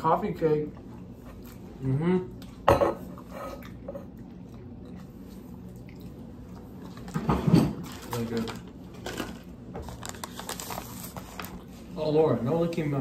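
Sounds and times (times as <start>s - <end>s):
quiet chewing: 0.7s - 7.2s.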